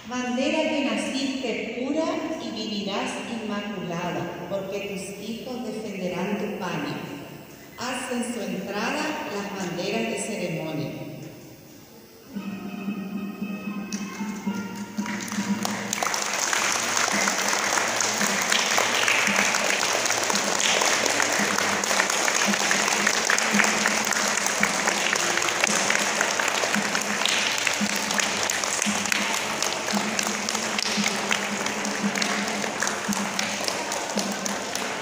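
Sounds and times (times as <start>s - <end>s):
children clapping: 13.9s - 35.0s.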